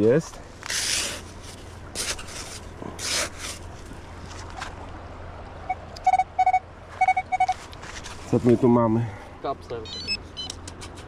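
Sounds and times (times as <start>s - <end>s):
hand shovel scraping sand: 0.6s - 3.8s
metal detector beeps: 5.7s - 7.6s, 9.8s - 10.6s.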